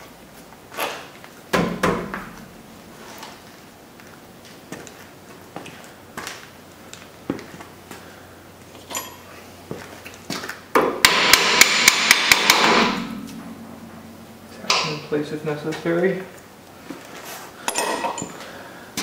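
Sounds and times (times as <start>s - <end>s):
hammer tapping metal: 11.0s - 15.1s.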